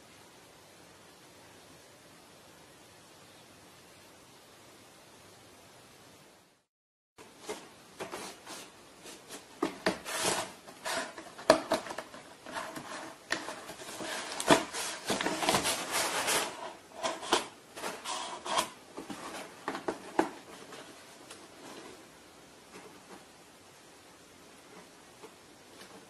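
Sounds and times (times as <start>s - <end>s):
rustling and scraping: 7.2s - 23.4s, 24.6s - 26.0s.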